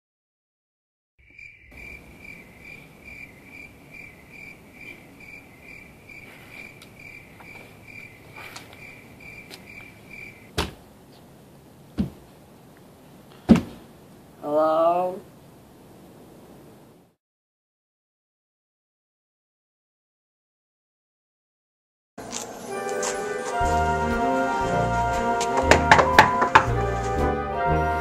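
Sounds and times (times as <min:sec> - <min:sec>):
cricket chirping: 0:01.2 - 0:10.6
knocks on a door: 0:25.6 - 0:26.7.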